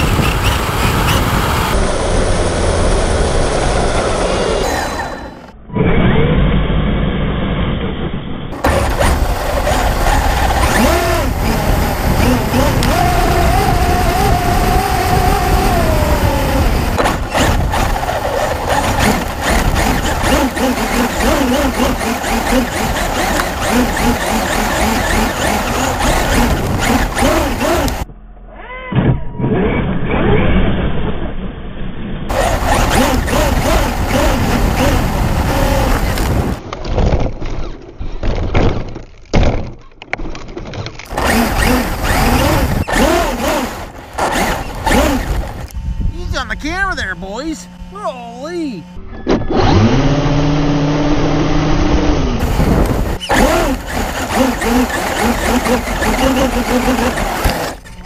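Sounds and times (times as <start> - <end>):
rush of wind and tyres: 0.0 - 28.1, 29.0 - 38.8, 40.8 - 46.3, 49.3 - 58.0
electric motor whining: 8.6 - 28.1, 32.3 - 36.6, 41.1 - 47.0, 47.6 - 58.0.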